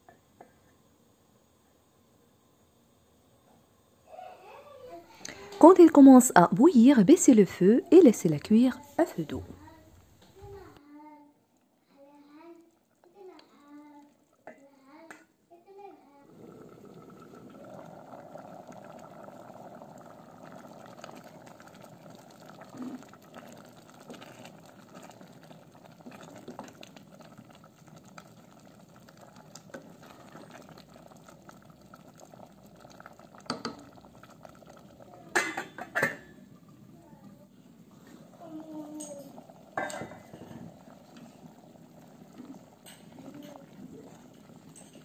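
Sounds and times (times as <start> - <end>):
soup bubbling in a pot: 9.4 - 15.3, 15.9 - 45.0.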